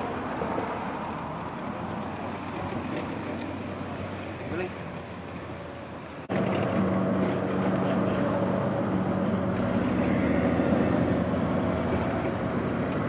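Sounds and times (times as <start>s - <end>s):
engine droning: 0.0s - 13.0s
tracked vehicle driving: 0.0s - 13.0s.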